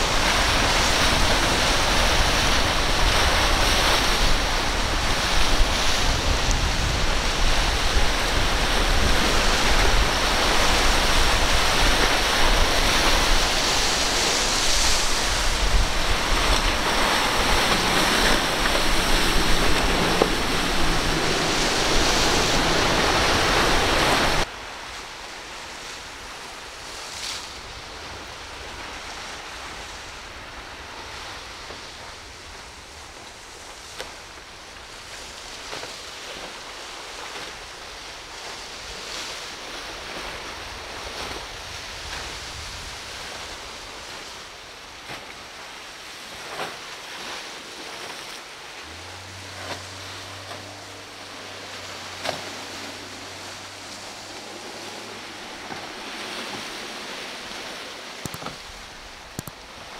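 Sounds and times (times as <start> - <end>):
wind buffeting microphone: 0.0 - 24.5
steady water hiss: 0.0 - 59.9
waves breaking: 0.0 - 59.9.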